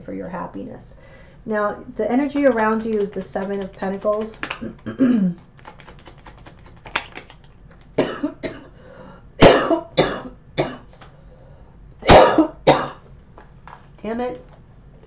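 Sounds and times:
person coughing: 4.8 - 5.4, 8.0 - 8.7, 9.4 - 10.9, 12.0 - 13.0.

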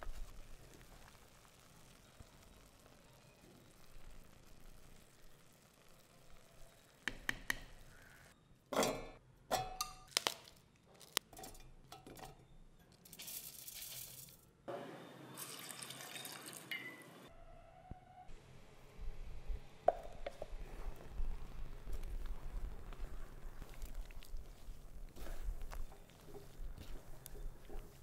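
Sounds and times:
pieces dropped into steel jar: 9.5 - 14.4
water trickling and pouring: 15.4 - 17.0.

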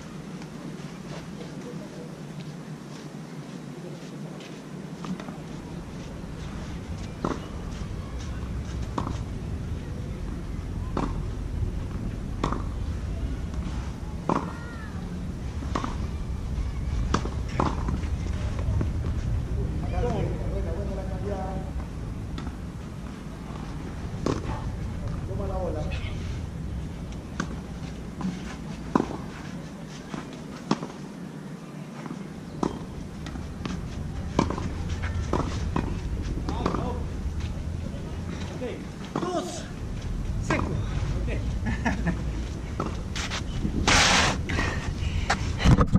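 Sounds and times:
footsteps on clay court: 0.3 - 10.0, 27.0 - 31.1, 31.9 - 44.2
steady low rumble: 4.2 - 29.9, 32.3 - 45.9
racket hitting tennis ball: 12.4 - 12.8, 13.6 - 14.6, 15.6 - 16.1, 32.6 - 37.0.

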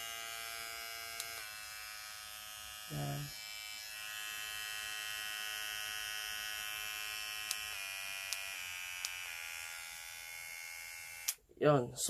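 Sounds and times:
microneedling pen motor buzzing: 0.0 - 11.4.

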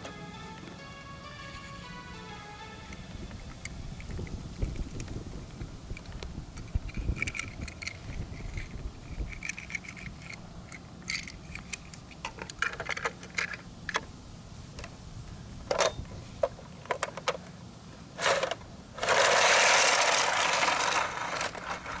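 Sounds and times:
toy cars clicking and knocking: 6.0 - 14.1, 15.7 - 17.5, 18.2 - 22.0
loud rapid rattle: 18.2 - 22.0.

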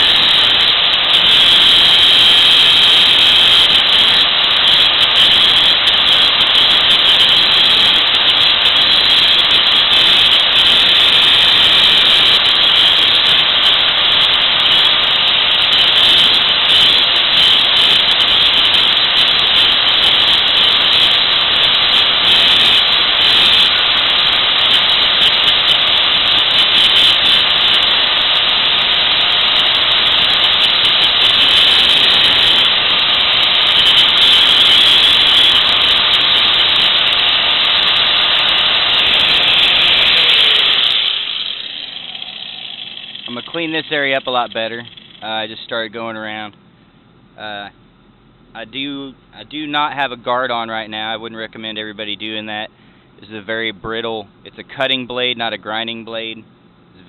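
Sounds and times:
angle grinder grinding metal: 0.0 - 45.9.

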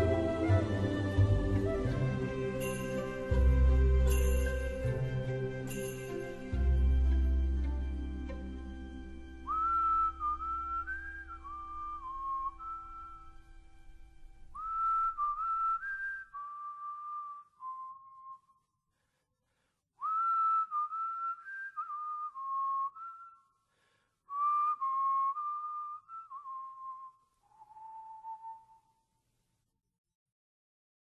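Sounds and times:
person whistling slow tune: 9.4 - 13.4, 14.5 - 18.8, 20.0 - 23.6, 24.3 - 29.1.

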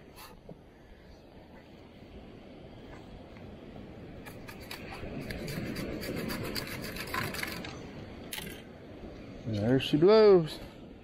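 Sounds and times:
sand scoop digging sand: 4.2 - 7.8.

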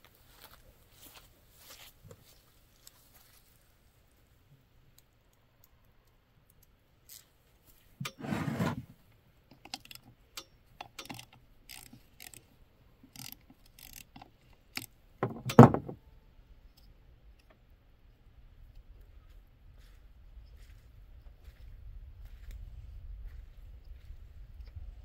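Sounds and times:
hand tools clicking on metal: 9.5 - 12.5, 13.1 - 15.6
tools clattering: 15.2 - 16.0.

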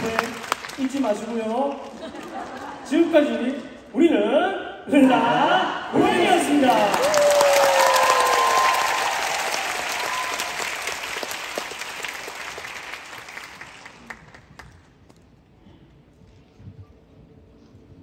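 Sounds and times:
audience applauding: 0.0 - 2.9, 6.0 - 14.9.

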